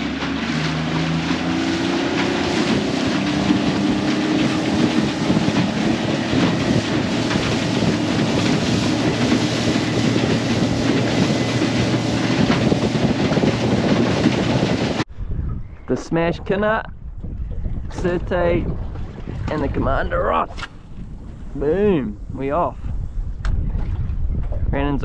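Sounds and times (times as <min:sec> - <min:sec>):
outboard motor running: 0:00.0 - 0:15.1
wind and water rushing: 0:00.0 - 0:25.0.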